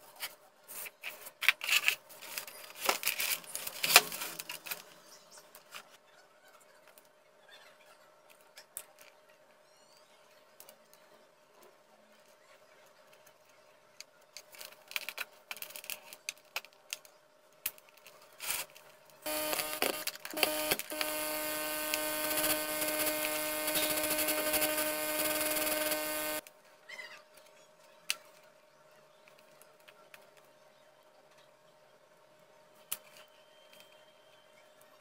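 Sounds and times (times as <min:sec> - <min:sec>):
wires clicking and rustling: 0:14.4 - 0:26.5
loud electrical buzz with hiss: 0:19.3 - 0:26.4.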